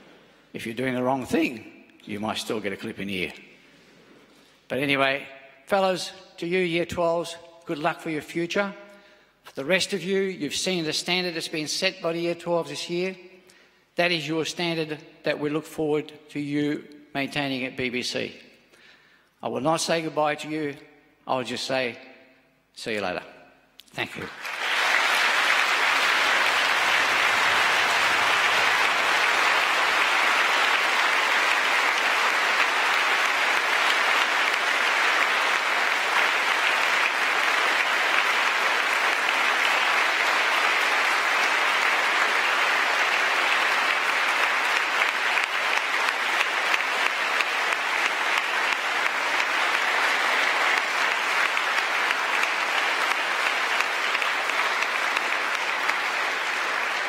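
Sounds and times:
audience applauding: 24.2 - 57.0.

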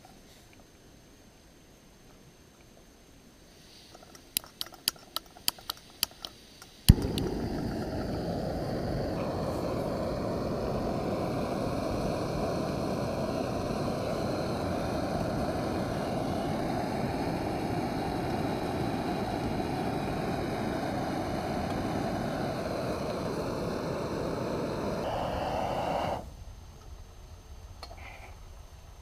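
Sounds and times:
camping stove hissing: 6.8 - 26.5.

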